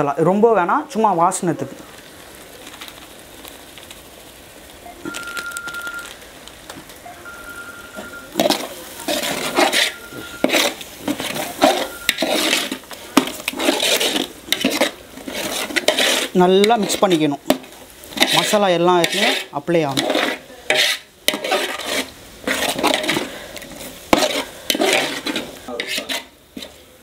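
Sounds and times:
metal ladle scraping a pot: 0:08.4 - 0:26.8.

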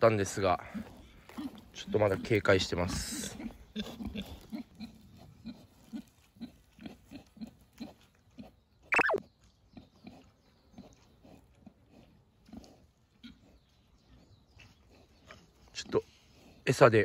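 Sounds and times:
pigs grunting softly: 0:00.1 - 0:09.0, 0:09.7 - 0:17.0
pig squealing: 0:09.0 - 0:09.2.

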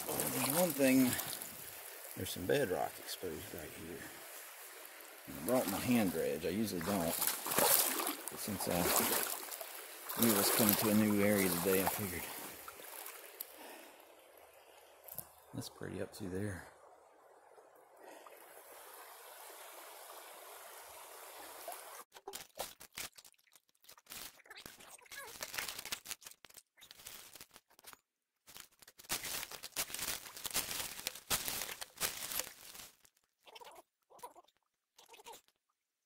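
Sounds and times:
steady hiss: 0:00.0 - 0:07.2
splashing and scraping gravel: 0:00.0 - 0:13.8, 0:28.5 - 0:33.2.

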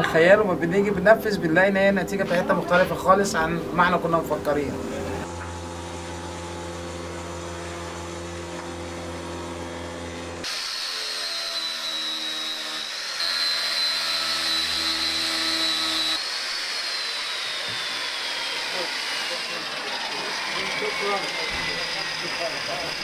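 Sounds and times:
low machine hum: 0:00.0 - 0:10.4
angle grinder sanding wood: 0:04.6 - 0:23.0.

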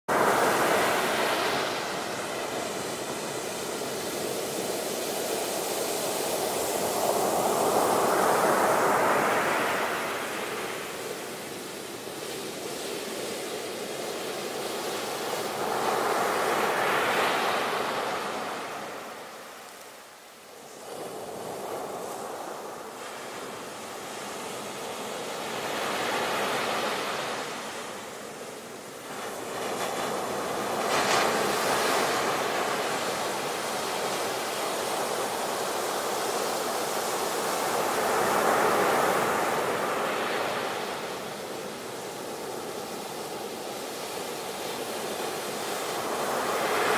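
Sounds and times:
ocean waves breaking on beach: 0:00.1 - 0:46.9.

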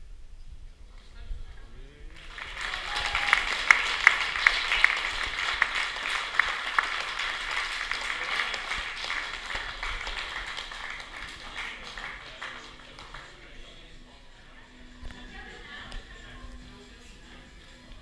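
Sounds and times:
crowd applauding: 0:02.1 - 0:14.0
loud sharp claps: 0:02.2 - 0:13.6.

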